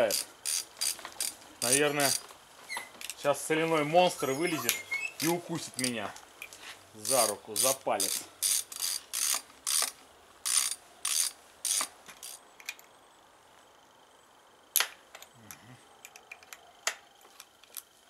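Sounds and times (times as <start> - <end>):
ratchet wrench clicking: 0.0 - 2.2, 7.0 - 12.8.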